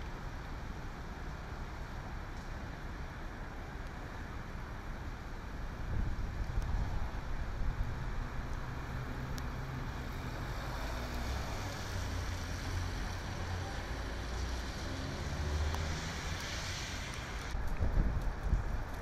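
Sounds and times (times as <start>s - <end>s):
traffic rumble: 0.0s - 19.0s
wet road hiss: 0.2s - 19.0s
car tyres swishing on wet road: 6.0s - 19.0s.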